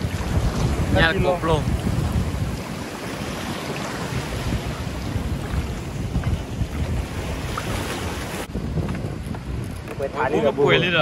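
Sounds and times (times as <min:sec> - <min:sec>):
choppy river water breaking: 0:00.0 - 0:10.3
wind gusting on microphone: 0:00.0 - 0:11.0.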